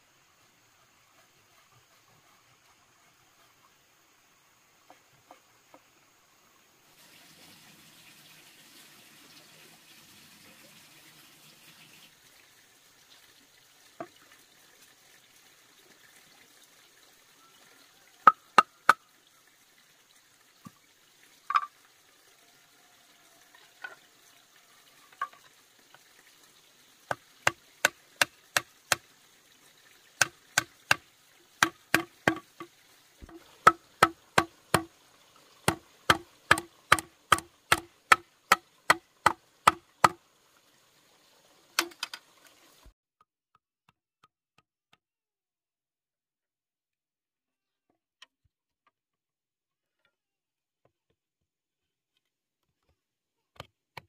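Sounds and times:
sharp strikes on wood: 31.6 - 32.6, 35.7 - 40.2.

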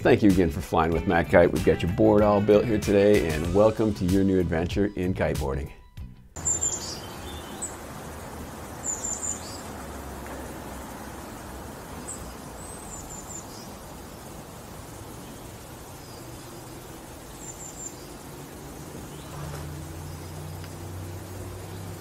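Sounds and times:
outdoor background hiss: 0.0 - 4.6, 6.3 - 22.0
small birds chirping: 6.4 - 22.0.

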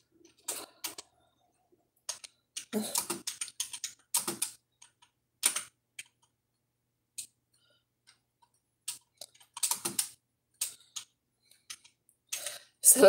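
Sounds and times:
typing on computer keyboard: 0.3 - 1.1, 2.0 - 6.3, 8.8 - 12.5.

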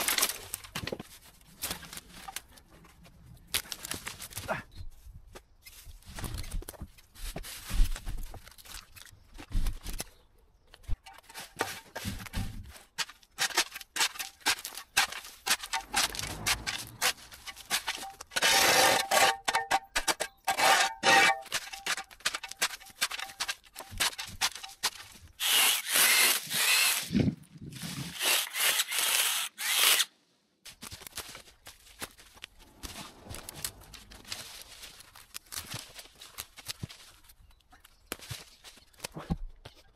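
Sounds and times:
twigs and leaves crunching: 0.0 - 18.4, 30.6 - 39.9
garden tool scraping: 11.0 - 30.0, 31.6 - 37.4.

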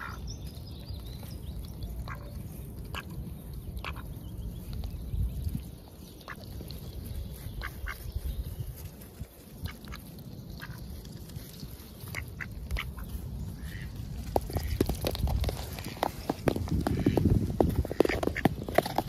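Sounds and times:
ducks quacking: 3.8 - 4.1, 7.6 - 8.1, 12.0 - 14.9, 15.5 - 18.5.

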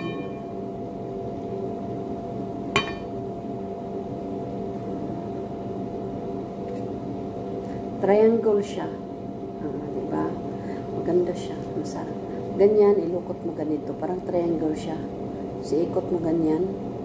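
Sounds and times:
ventilation machinery hum: 0.0 - 17.0
ringing clink: 2.8 - 3.1.

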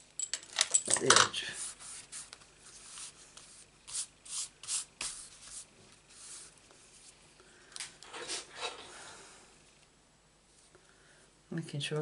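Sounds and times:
paper rubbing and scraping: 1.6 - 7.1.

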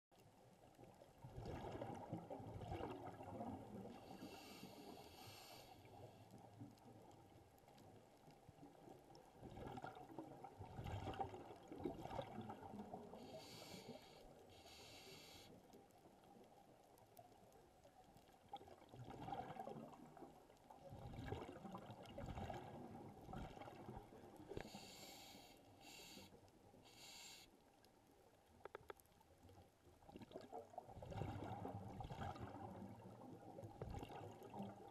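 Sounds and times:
regulator inhale hiss: 4.0 - 6.2, 13.2 - 15.6, 24.6 - 27.6.

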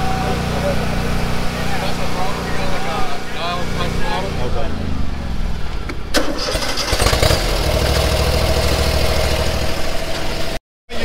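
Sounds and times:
low rumble: 0.0 - 6.2
steady whine: 0.0 - 6.3
mower engine running: 0.0 - 10.6.

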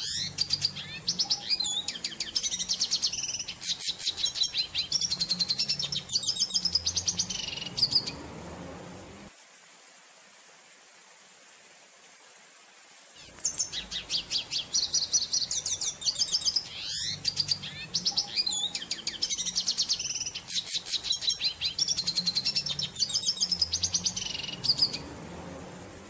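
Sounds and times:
bird twittering song: 0.0 - 8.4, 13.2 - 25.3.

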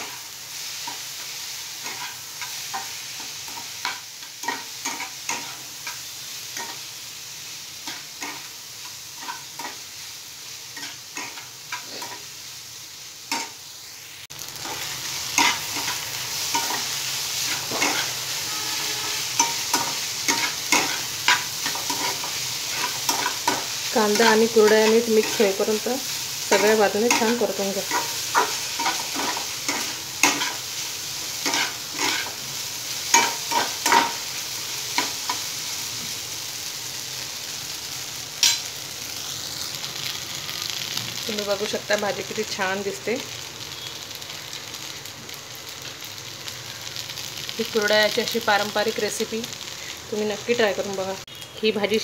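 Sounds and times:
frying sizzle: 0.0 - 52.0
spatula scraping a pan: 10.8 - 12.3, 14.6 - 25.6, 26.4 - 32.4.

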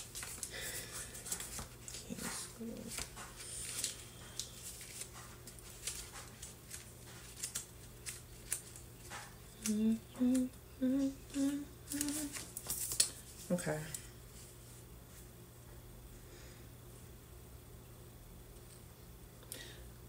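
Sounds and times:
paper rustling: 0.0 - 10.4, 11.3 - 13.6
woman softly humming: 9.6 - 12.4.

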